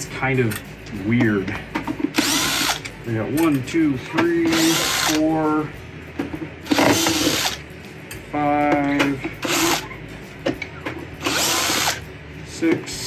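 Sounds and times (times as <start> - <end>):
cordless drill bursts with motor whine: 2.2 - 2.8, 4.5 - 5.2, 6.9 - 7.6, 9.4 - 9.8, 11.2 - 12.0.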